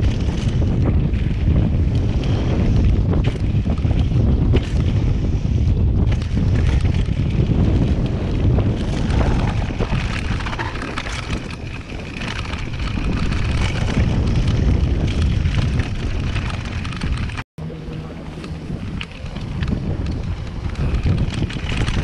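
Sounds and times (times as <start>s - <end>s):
bike rattling over bumps: 0.0s - 17.4s, 18.1s - 22.0s
wind buffeting microphone: 0.0s - 22.0s
tyres rumbling on dirt: 6.0s - 22.0s.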